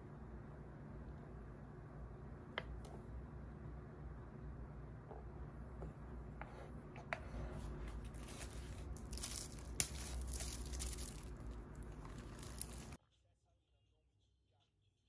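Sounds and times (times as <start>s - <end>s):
plastic wrapper crinkling and tearing: 8.1s - 13.0s.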